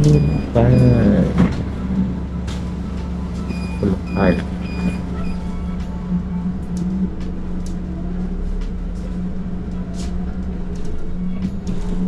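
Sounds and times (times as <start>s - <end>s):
bus engine running: 0.0s - 12.0s.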